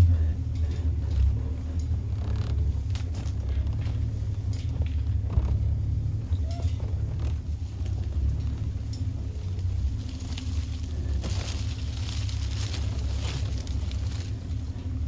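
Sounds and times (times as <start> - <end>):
vehicle engine low rumble: 0.0 - 15.0
light knocks and rattles: 0.1 - 15.0.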